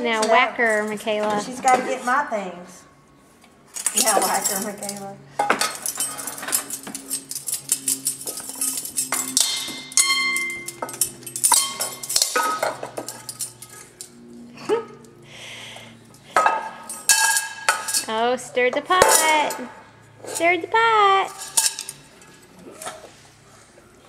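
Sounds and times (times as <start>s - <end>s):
utensils banging on pots: 3.8s - 15.3s, 16.0s - 23.0s.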